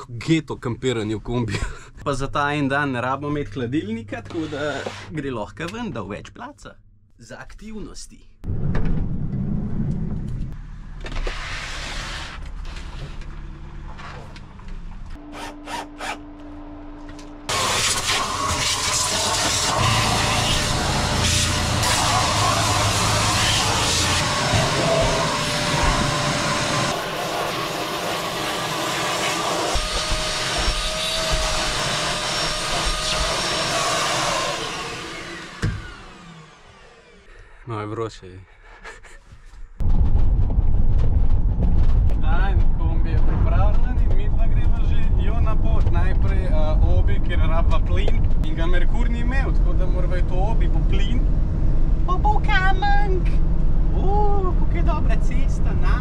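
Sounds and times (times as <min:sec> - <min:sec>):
shop vacuum running: 0:15.2 - 0:37.4
cordless drill humming: 0:17.5 - 0:37.3.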